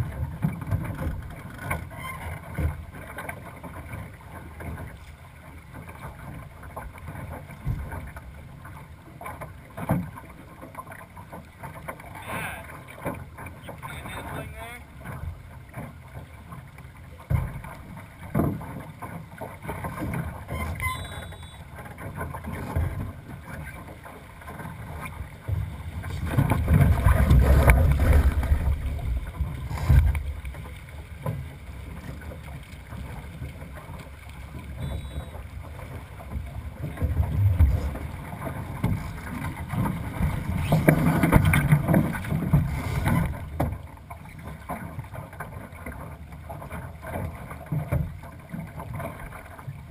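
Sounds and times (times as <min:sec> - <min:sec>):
water rushing along hull: 0:00.0 - 0:49.9
sharp knocks on boat: 0:06.8 - 0:08.2, 0:17.2 - 0:23.6, 0:36.3 - 0:43.8
wind on microphone: 0:25.5 - 0:30.6, 0:36.4 - 0:43.4.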